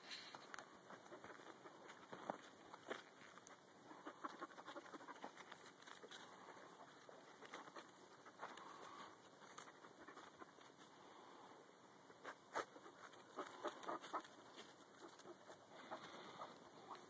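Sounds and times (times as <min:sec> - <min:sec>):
footsteps on dry dirt: 0:00.2 - 0:03.6.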